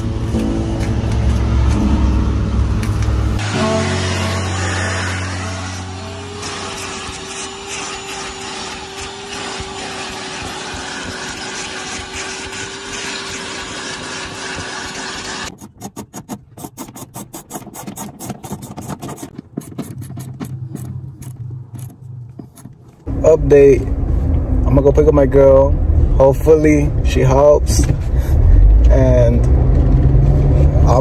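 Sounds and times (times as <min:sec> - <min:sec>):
vacuum cleaner on carpet: 0:03.4 - 0:15.5.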